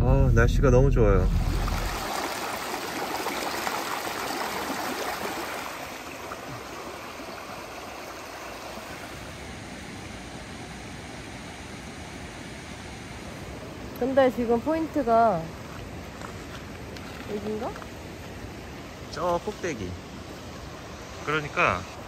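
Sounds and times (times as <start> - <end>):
stream babbling over rocks: 1.2 - 11.5.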